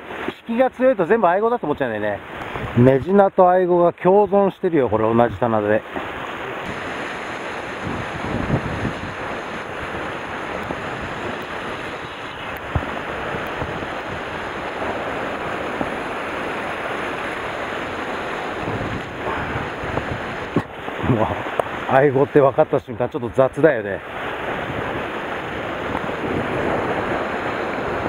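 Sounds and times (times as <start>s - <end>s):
surf washing against rocks: 0.0s - 3.8s, 4.4s - 28.0s
wind noise on microphone: 2.4s - 3.1s, 6.1s - 21.8s, 24.1s - 28.0s.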